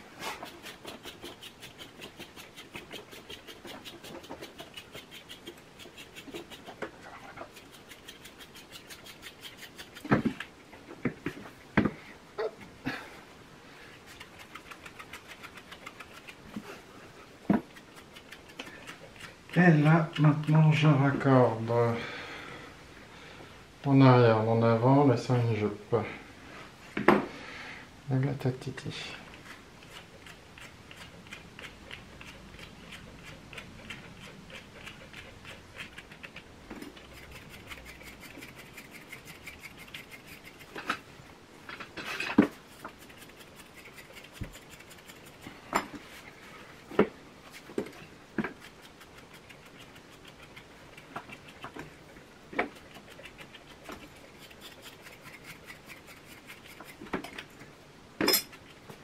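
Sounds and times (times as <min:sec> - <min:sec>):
comb scratching through dog fur: 0:00.0 - 0:10.5, 0:14.0 - 0:21.7, 0:29.2 - 0:41.2, 0:42.1 - 0:57.8
grooming tools clicking: 0:00.4 - 0:10.5, 0:14.1 - 0:16.6, 0:17.6 - 0:20.7, 0:29.3 - 0:41.0, 0:42.3 - 0:45.5, 0:47.8 - 0:57.6.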